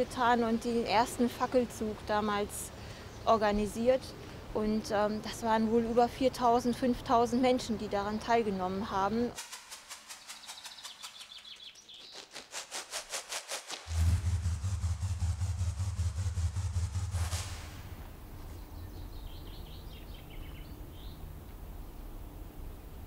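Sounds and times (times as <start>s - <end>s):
faint bird chirps: 10.1s - 12.3s
low engine hum: 13.8s - 23.0s.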